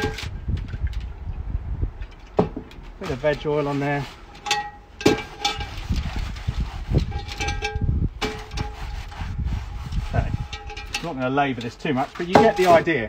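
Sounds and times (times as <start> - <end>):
rubbing on cast iron pan: 5.1 - 12.9.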